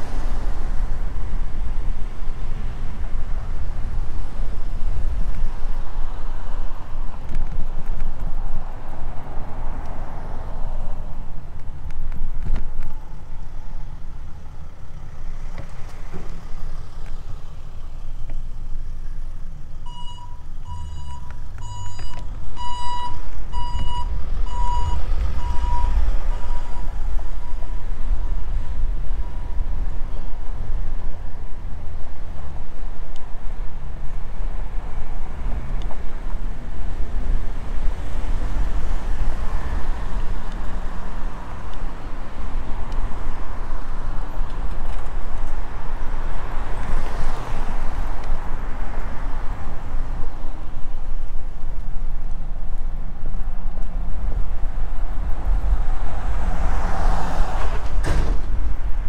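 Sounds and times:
vehicle reversing alarm beeping: 19.8 - 27.8.

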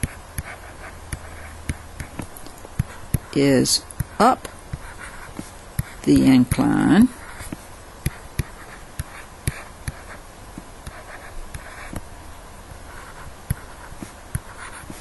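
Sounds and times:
stylus scratching on a screen: 0.0 - 12.1, 12.7 - 15.0
stylus tapping on a screen: 7.4 - 12.1.

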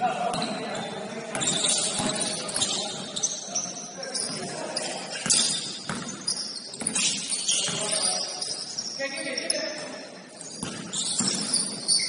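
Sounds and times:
players' voices: 0.0 - 11.8
sneakers squeaking on court: 0.2 - 12.0
basketball bouncing: 5.2 - 8.0, 10.5 - 11.8.

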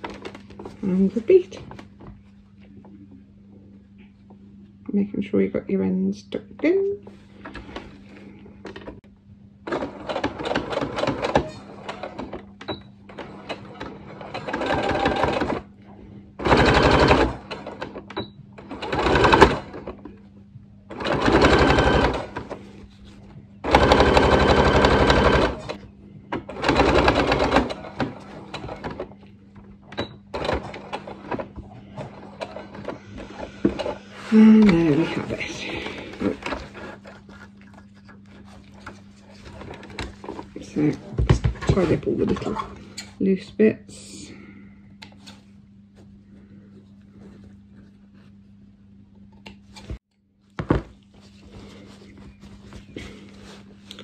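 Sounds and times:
sewing machine stitching: 9.7 - 12.4, 13.1 - 15.7, 16.4 - 18.0, 18.6 - 20.0, 20.9 - 22.6, 23.6 - 25.8, 26.5 - 29.1, 30.0 - 37.1.

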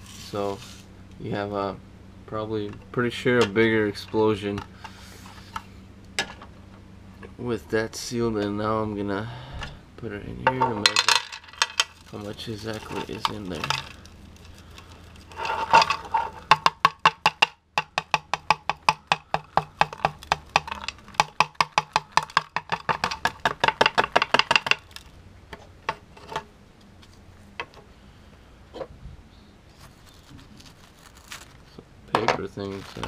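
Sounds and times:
rapid knocking on plastic tray: 16.5 - 24.8.

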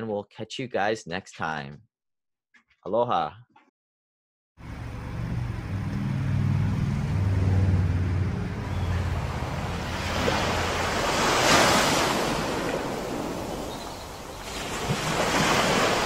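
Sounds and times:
car engine humming: 4.6 - 11.5
ocean waves breaking: 6.4 - 16.0.

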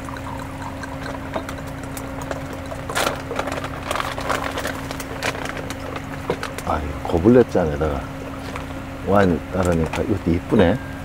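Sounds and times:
glasses and tableware clinking: 0.0 - 2.9
steady low hum: 0.0 - 11.0.

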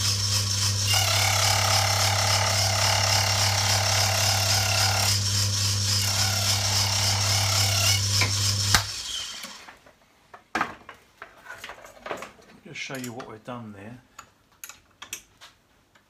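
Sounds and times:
motor hum: 0.0 - 9.5
metal cutting noise: 0.0 - 9.7.

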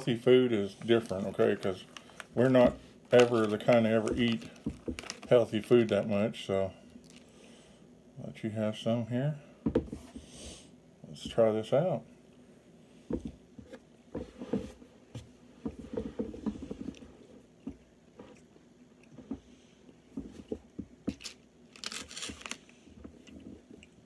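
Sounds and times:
people chewing: 16.8 - 21.4.

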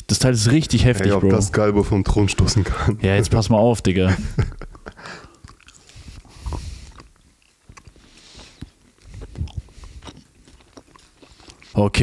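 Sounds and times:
mouth clicks and smacks: 4.7 - 11.8
person chewing candy: 5.0 - 12.0.

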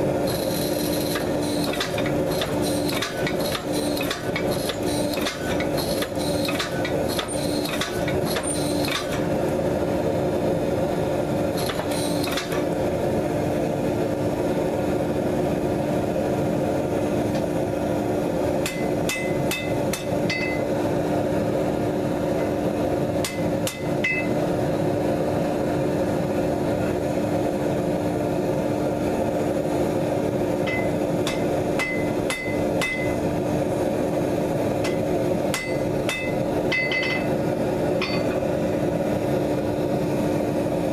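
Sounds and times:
steel clinking on steel: 18.7 - 20.7, 23.3 - 24.3, 30.7 - 33.2, 34.8 - 37.3, 38.0 - 38.4.

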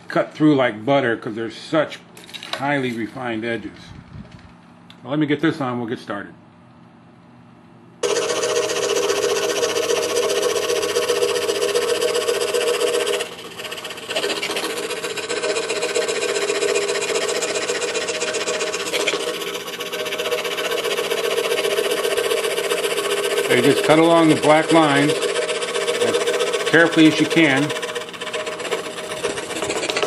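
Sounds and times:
scroll saw cutting wood: 8.0 - 30.0.

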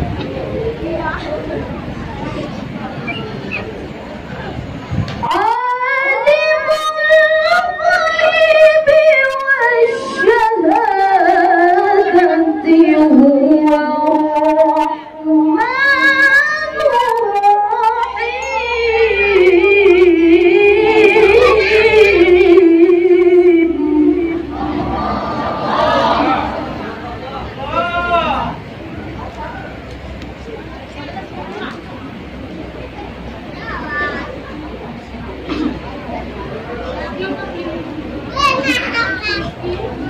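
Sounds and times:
woman reciting melodically: 5.2 - 26.8.

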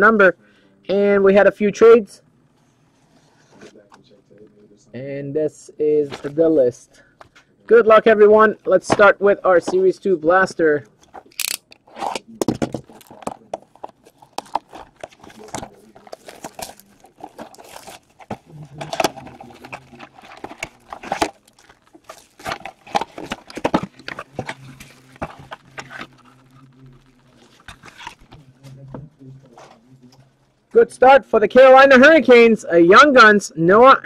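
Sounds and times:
cardboard and plastic wrap tearing: 11.1 - 28.5.

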